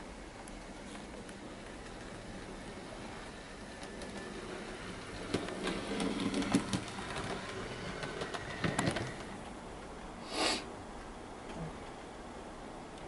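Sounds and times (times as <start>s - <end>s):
model train motor: 0.5s - 9.5s
wheels clicking over rail joints: 0.5s - 9.6s
short hiss: 10.2s - 10.7s.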